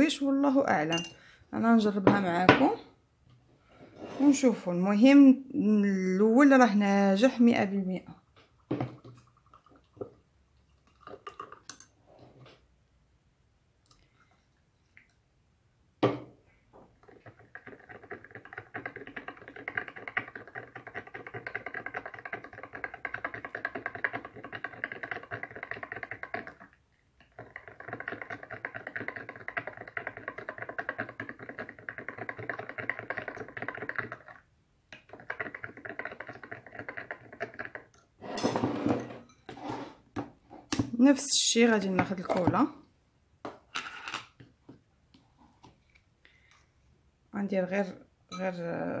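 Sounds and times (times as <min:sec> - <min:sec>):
glass and bowl clattering: 0:00.9 - 0:01.2, 0:38.2 - 0:39.8.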